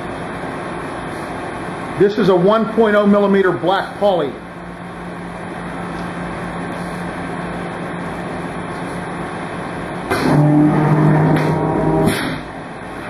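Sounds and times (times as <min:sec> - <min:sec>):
deep machine drone: 0:04.2 - 0:13.0
die cutter machine hum: 0:09.6 - 0:13.0.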